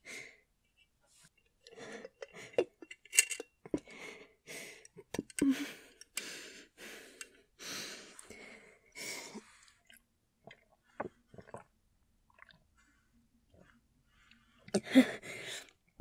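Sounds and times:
woman breathing heavily: 3.8 - 9.7, 12.8 - 15.7
mouth clicks and swallows: 9.6 - 11.7.

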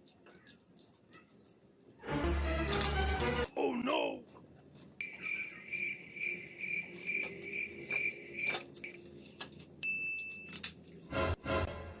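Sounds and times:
cricket chirping: 5.0 - 8.6.

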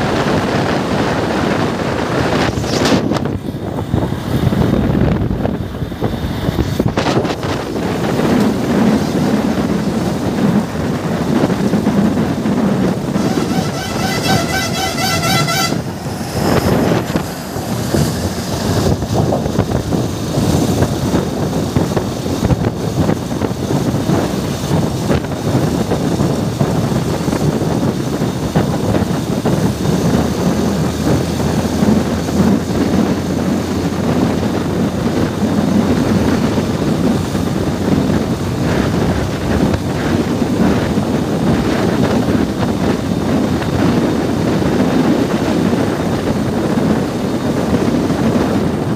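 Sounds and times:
vehicle road noise on bridge: 0.0 - 48.9
wind buffeting microphone: 0.0 - 48.9
vehicle horn pulsing toots: 13.0 - 17.3.

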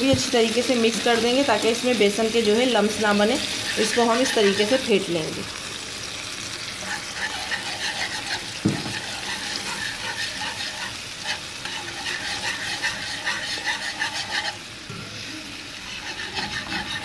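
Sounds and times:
light sizzle: 0.0 - 17.0
whisk scraping and clinking in pan: 3.2 - 4.9, 6.8 - 14.7, 15.8 - 17.0.

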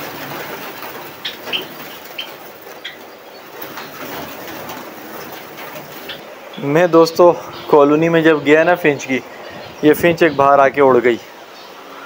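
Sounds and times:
fluttering wings: 0.0 - 6.3
sparrows chirping: 0.0 - 12.0.

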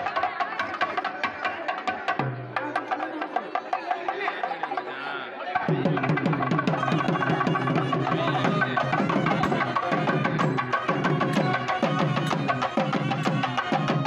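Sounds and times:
drums in fast steady rhythm: 5.6 - 14.0.

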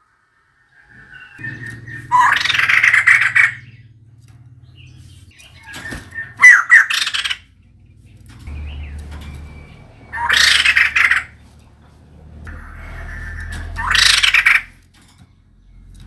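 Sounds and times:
bird harsh chattering calls: 0.9 - 11.9, 12.5 - 14.9.

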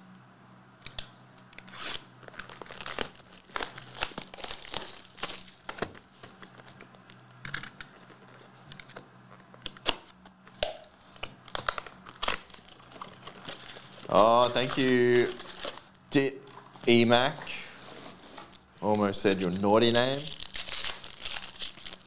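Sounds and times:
plastic wrap crinkling and tearing: 1.6 - 6.8, 11.0 - 16.9, 17.5 - 22.0.

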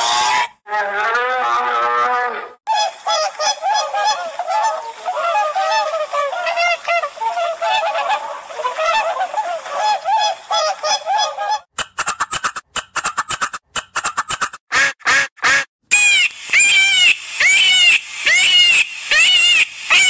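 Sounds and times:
swans honking: 0.0 - 20.0
bear call: 15.9 - 20.0.

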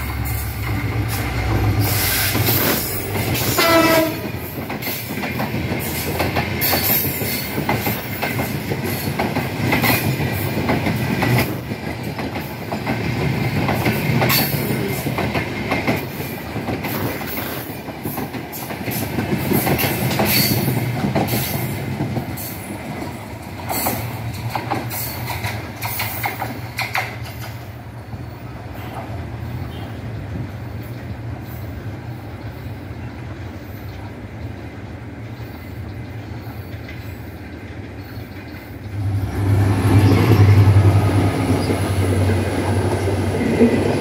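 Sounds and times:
wheels clacking over rail joints: 0.0 - 31.7, 36.1 - 44.0
diesel locomotive rumbling: 0.0 - 44.0
train horn blast: 3.4 - 4.4.

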